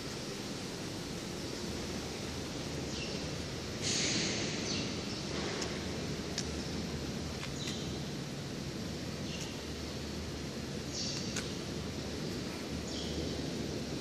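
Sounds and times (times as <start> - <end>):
factory hall hum: 0.0 - 14.0
short burst of hiss: 3.8 - 4.7.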